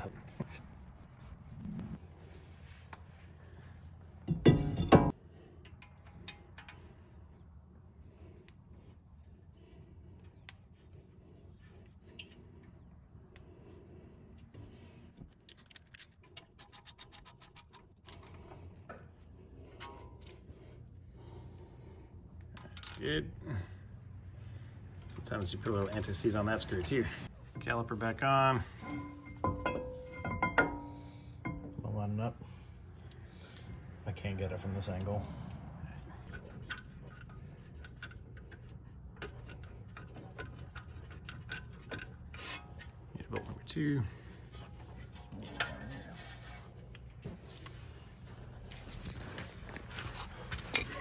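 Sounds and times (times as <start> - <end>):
metal knocks: 4.2 - 5.1, 28.8 - 31.8
steady low hum: 18.0 - 51.0.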